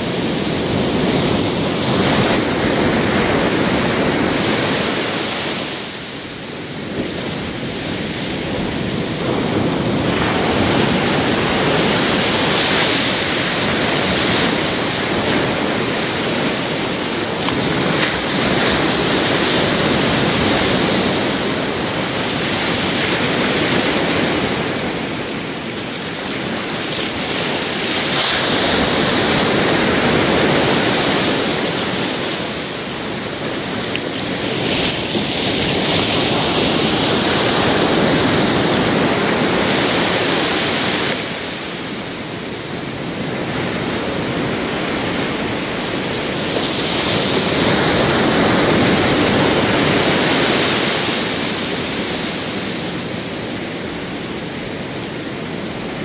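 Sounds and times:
ocean surf breaking: 0.0s - 56.0s.

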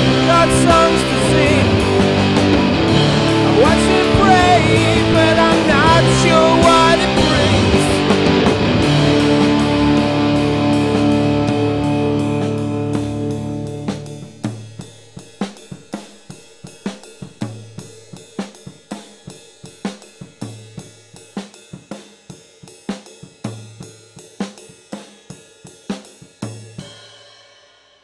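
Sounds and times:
rock drum kit playing: 0.0s - 27.8s.

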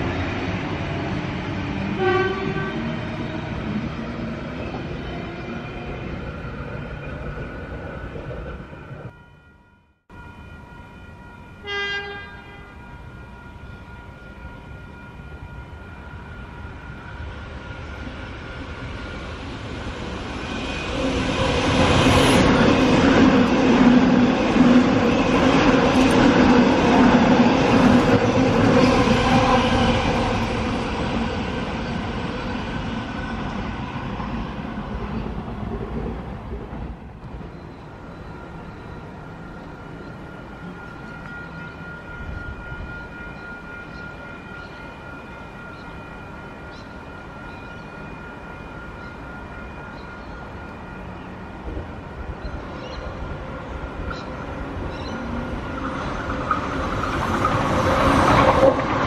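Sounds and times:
passenger train passing: 0.0s - 59.0s
train horn blast: 1.9s - 3.0s, 11.6s - 13.0s.

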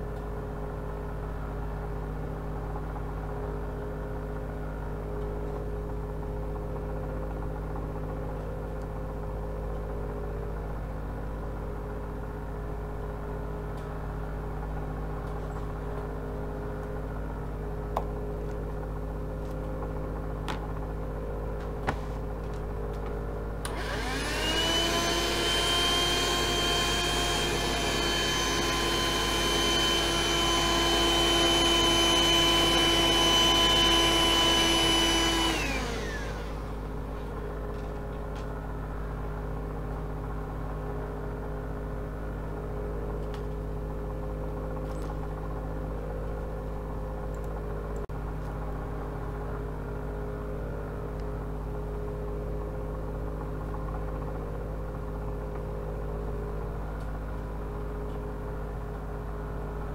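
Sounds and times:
hand vacuum motor whine: 23.6s - 38.4s.

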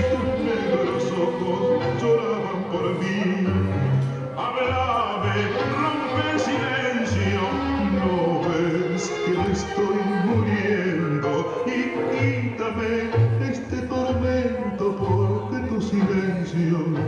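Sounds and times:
tango music: 0.0s - 17.0s.

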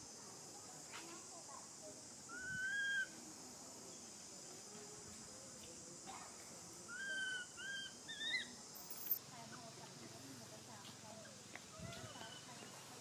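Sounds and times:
baby monkey high-pitched cries: 2.3s - 3.0s, 6.9s - 9.2s.

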